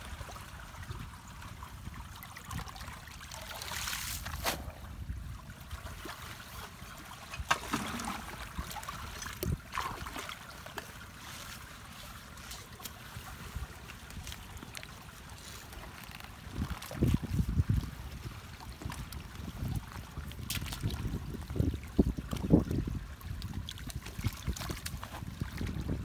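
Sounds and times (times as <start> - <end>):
wind rumble on microphone: 0.0 - 3.2, 4.2 - 6.1, 6.8 - 10.0, 16.2 - 26.0
water trickling through culvert: 0.0 - 26.0.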